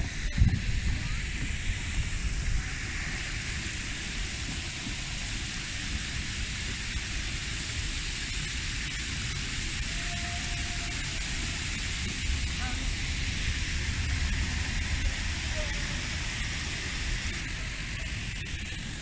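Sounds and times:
low rumble: 0:00.0 - 0:08.0, 0:11.0 - 0:19.0
water streaming down fountain: 0:00.0 - 0:19.0.

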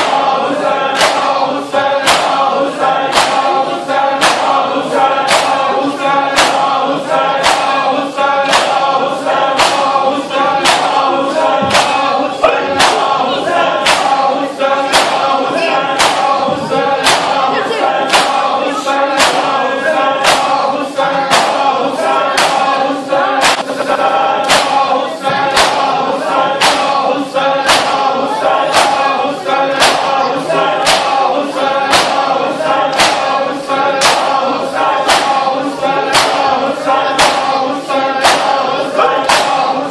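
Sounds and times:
crowd of men chanting: 0:00.0 - 0:39.9
hands slapping chests: 0:01.0 - 0:01.3, 0:02.0 - 0:02.4, 0:03.1 - 0:03.5, 0:04.2 - 0:04.6, 0:05.3 - 0:05.7, 0:06.3 - 0:06.8, 0:07.4 - 0:07.8, 0:08.5 - 0:08.9, 0:09.6 - 0:10.0, 0:10.6 - 0:11.0, 0:11.7 - 0:12.1, 0:12.8 - 0:13.2, 0:13.8 - 0:14.2, 0:14.9 - 0:15.3, 0:15.9 - 0:16.4, 0:17.0 - 0:17.4, 0:18.1 - 0:18.5, 0:19.2 - 0:19.6, 0:20.2 - 0:20.6, 0:21.3 - 0:21.7, 0:22.4 - 0:22.7, 0:23.4 - 0:23.8, 0:24.4 - 0:24.8, 0:25.5 - 0:25.9, 0:26.6 - 0:27.0, 0:27.6 - 0:29.1, 0:29.8 - 0:30.2, 0:30.8 - 0:31.2, 0:31.8 - 0:33.4, 0:34.0 - 0:34.4, 0:35.0 - 0:35.5, 0:36.1 - 0:36.5, 0:37.2 - 0:37.5, 0:38.2 - 0:38.6, 0:39.2 - 0:39.7.

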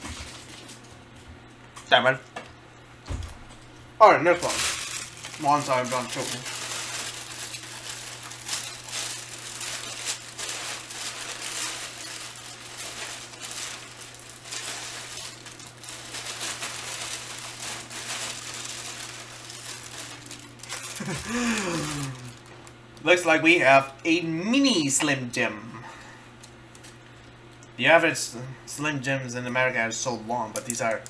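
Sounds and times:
plastic packaging crinkling: 0:04.2 - 0:22.8.

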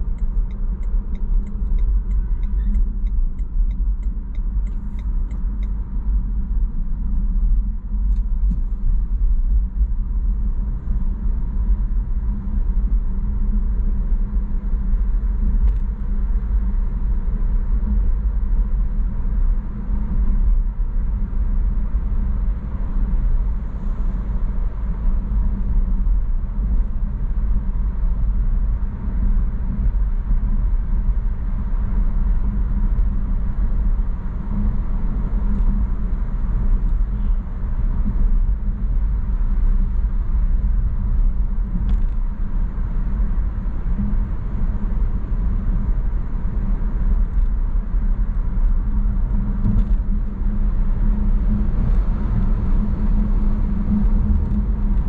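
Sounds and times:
car cabin road and engine rumble: 0:00.0 - 0:55.0.

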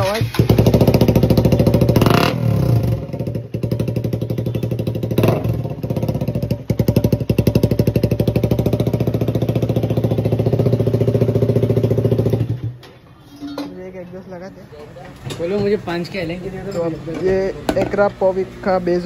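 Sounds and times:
motorcycle engine popping exhaust: 0:00.0 - 0:12.8.

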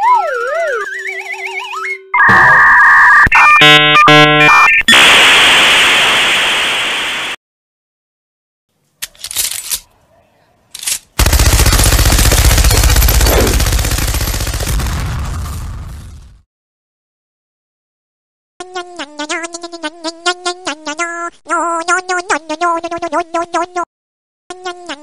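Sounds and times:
electronic beeping buzzer: 0:02.2 - 0:05.1
machine gun firing: 0:11.2 - 0:15.2.

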